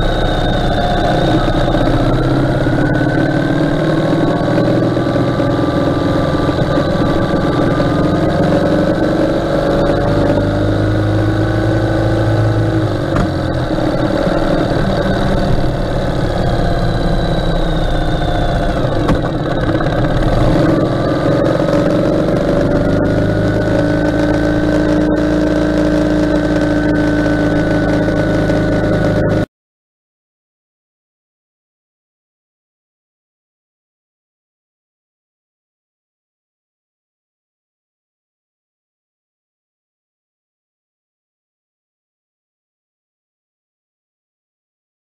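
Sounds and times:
motorcycle engine running: 0.0s - 29.5s
road and wind rush: 0.0s - 29.5s.

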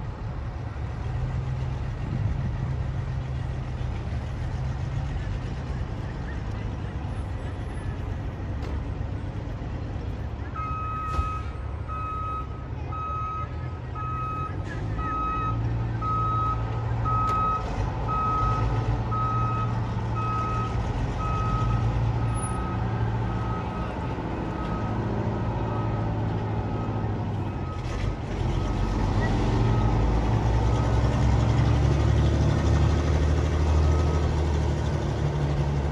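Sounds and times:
reversing alarm beeping: 10.6s - 31.2s.

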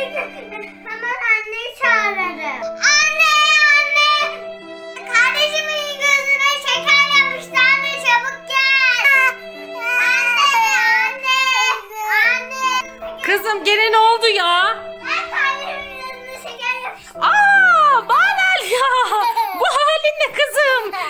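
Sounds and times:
keyboard chords: 0.0s - 21.0s.

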